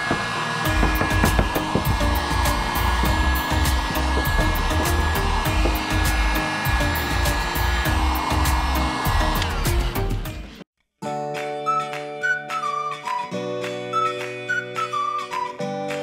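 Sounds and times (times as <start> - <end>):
heat gun blowing: 0.0 - 10.6.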